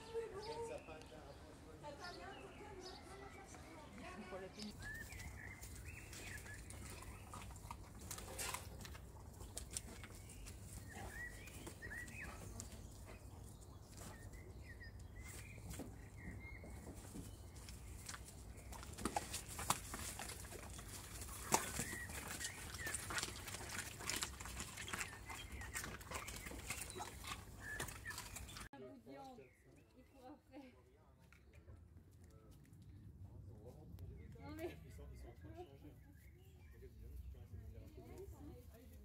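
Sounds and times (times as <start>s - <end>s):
wolves whining: 20.7s - 28.7s.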